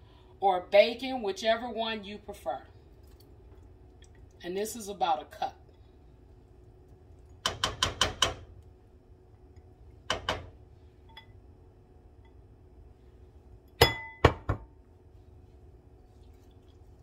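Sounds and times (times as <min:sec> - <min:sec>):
ringing glass clink: 0:13.8 - 0:14.4.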